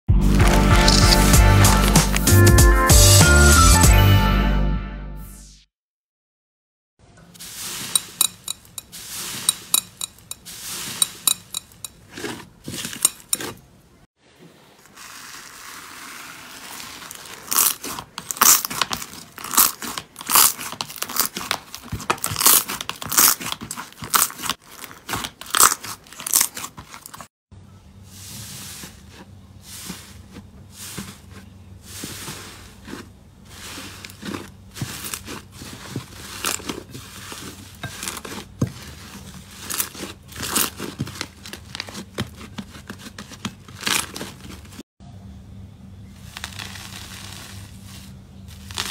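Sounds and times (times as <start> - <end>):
slime crackling and popping: 0.4 - 2.3, 15.0 - 27.1, 46.2 - 48.9.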